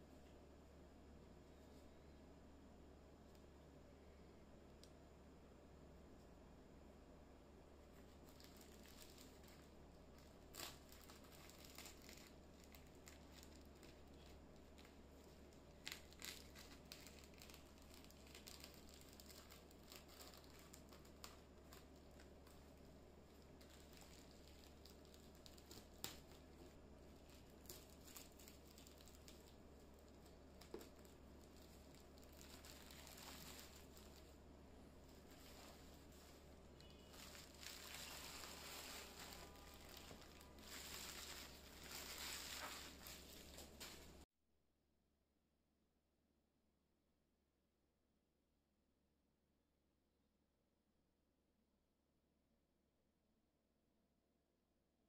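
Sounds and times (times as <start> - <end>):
steady low hum: 0.0 - 44.2
plastic crackles: 7.8 - 44.2
plastic bag crinkling and tearing: 7.9 - 44.2.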